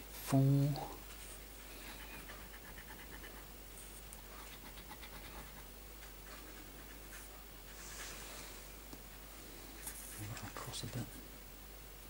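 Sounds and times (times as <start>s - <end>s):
coin scratching a scratch card: 4.4s - 5.6s.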